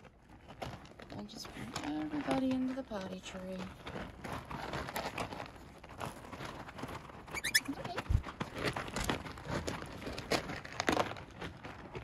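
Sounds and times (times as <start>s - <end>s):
pellet litter crunching and rattling: 0.0s - 12.0s
high puppy squeak: 7.3s - 8.2s.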